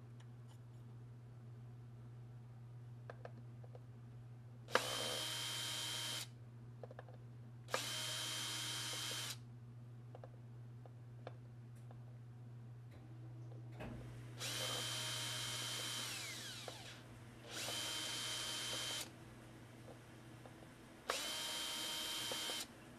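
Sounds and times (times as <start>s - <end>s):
cordless drill whining: 4.7s - 6.3s, 7.7s - 9.4s, 14.4s - 19.1s, 21.1s - 22.7s
sharp drill click: 7.7s - 9.4s, 14.4s - 19.1s, 21.1s - 22.7s.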